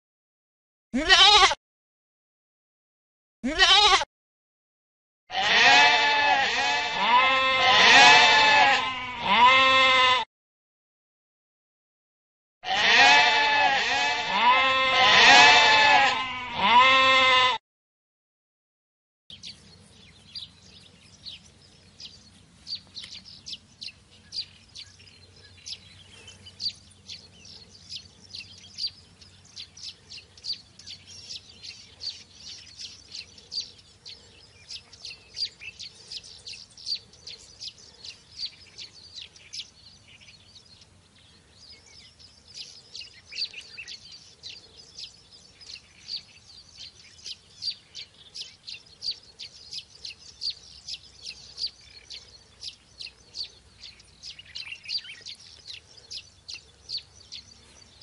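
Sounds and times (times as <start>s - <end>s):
birds chirping: 19.3s - 58.0s.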